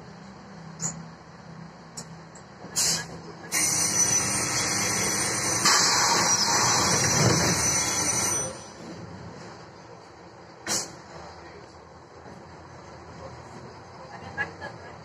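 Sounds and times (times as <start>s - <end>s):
diesel bus engine idling: 0.0s - 15.0s
rush of air from pneumatics: 2.8s - 8.7s, 10.6s - 11.1s.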